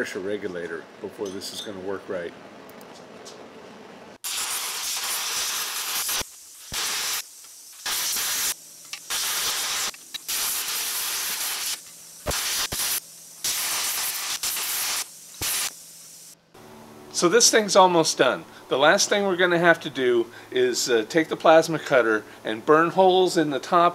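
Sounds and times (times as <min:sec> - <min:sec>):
plasma cutter hissing: 0:04.2 - 0:16.4
propane burners hissing: 0:04.2 - 0:16.4, 0:17.1 - 0:23.9.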